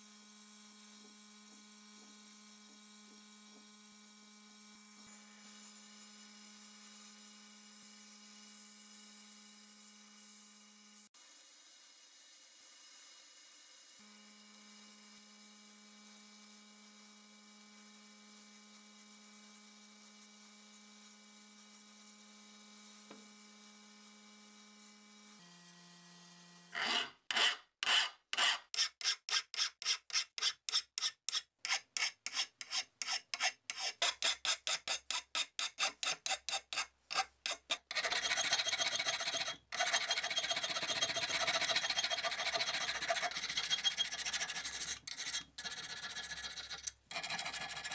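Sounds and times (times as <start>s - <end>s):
file rasping on metal: 26.7s - 47.9s.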